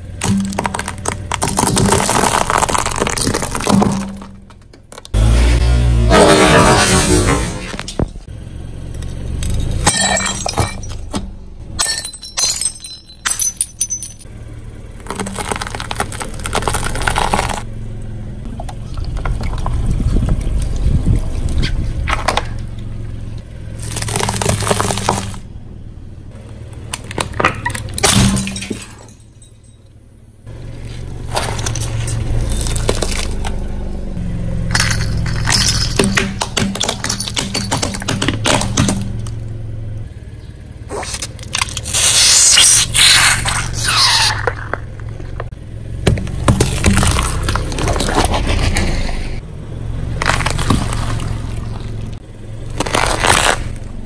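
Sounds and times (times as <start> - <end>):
tyre crunching and squashing objects: 0.0 - 5.5, 15.0 - 17.7, 23.7 - 25.5, 30.6 - 33.8, 34.7 - 39.5, 40.8 - 54.0
car low rumble: 0.0 - 54.0
brittle bowls cracking and breaking: 0.2 - 5.2, 15.0 - 17.6, 23.8 - 25.4, 31.3 - 33.6, 40.9 - 45.2, 50.2 - 53.8.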